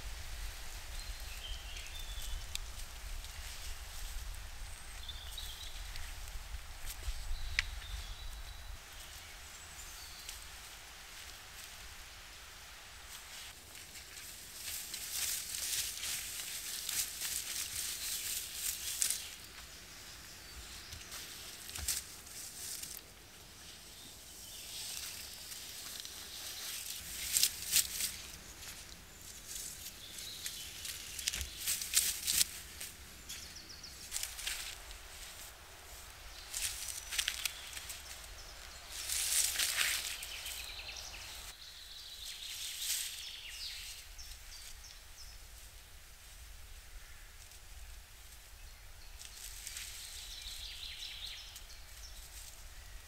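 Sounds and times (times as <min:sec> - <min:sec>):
small birds chirping: 0:00.0 - 0:12.0, 0:13.3 - 0:53.0
rustling of twigs and sprigs: 0:00.0 - 0:53.0
sharp twig crackle: 0:14.1 - 0:19.5, 0:24.8 - 0:41.5.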